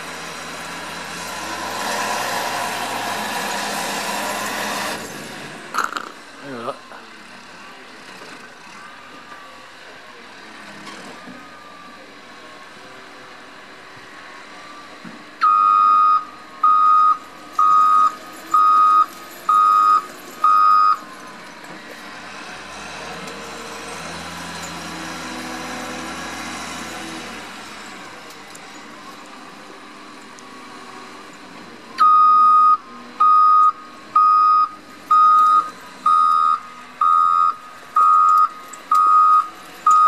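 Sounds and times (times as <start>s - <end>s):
loader engine: 0.0s - 40.0s
reversing alarm beeps: 15.4s - 21.0s, 32.0s - 40.0s.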